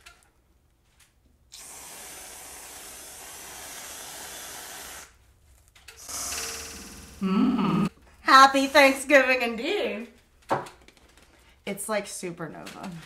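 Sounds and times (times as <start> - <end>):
whipped cream can spraying: 1.5 - 5.2.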